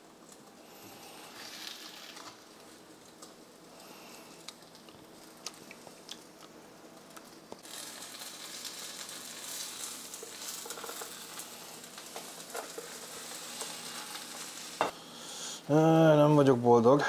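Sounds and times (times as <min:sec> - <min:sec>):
egg whites sizzling in a pan: 0:00.1 - 0:16.2
spatula scraping a pan: 0:07.7 - 0:15.0.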